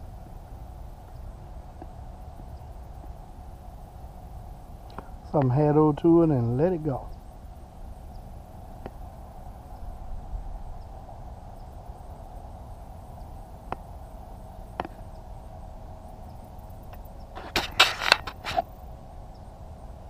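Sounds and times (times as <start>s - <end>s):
faint hum: 0.0s - 20.0s
faint ticks: 4.8s - 5.6s, 13.1s - 14.0s, 14.7s - 15.3s
rustling: 17.3s - 18.8s.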